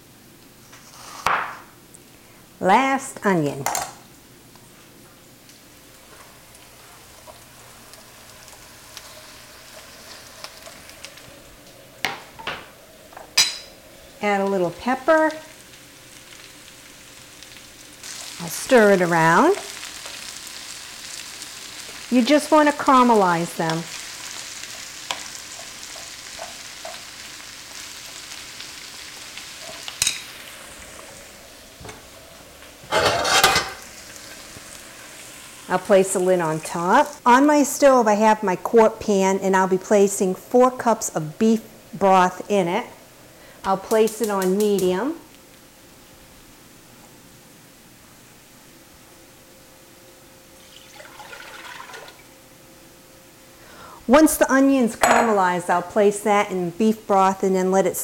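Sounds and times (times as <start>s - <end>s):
onions sizzling in a frying pan: 2.8s - 46.9s
wooden spoon scraping pan: 32.8s - 33.8s
cookware clattering in cabinet: 32.9s - 33.8s.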